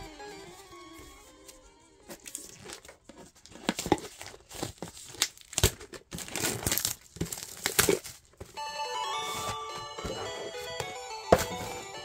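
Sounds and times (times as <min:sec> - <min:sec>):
music: 0:00.0 - 0:02.6, 0:08.6 - 0:12.0
foil wrapper crinkling and tearing: 0:02.1 - 0:08.6.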